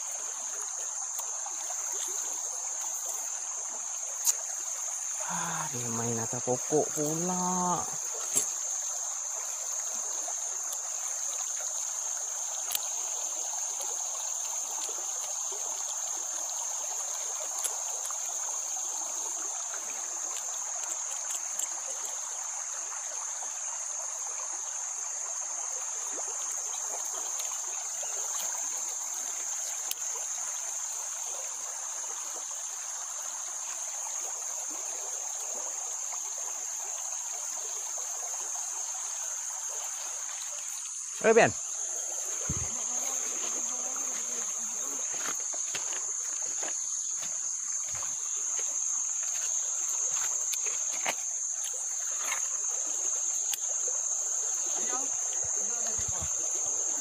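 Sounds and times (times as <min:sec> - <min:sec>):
high-pitched insect drone: 0:00.0 - 0:57.0
running stream water: 0:00.0 - 0:57.0.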